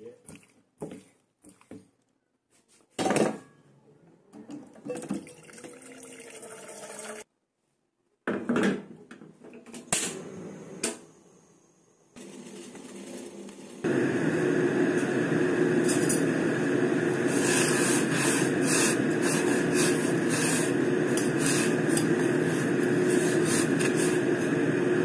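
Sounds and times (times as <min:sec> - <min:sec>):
utensils scraping a pot: 0:17.3 - 0:24.2.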